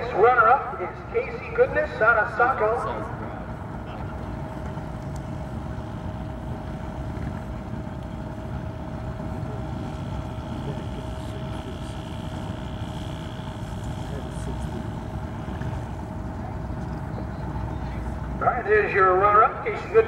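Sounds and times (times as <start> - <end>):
moped engine running: 9.4 - 16.1.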